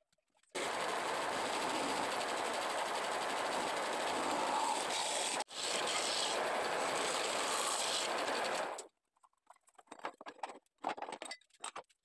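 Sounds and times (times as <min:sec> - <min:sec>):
wood lathe cutting hiss: 0:00.6 - 0:08.8.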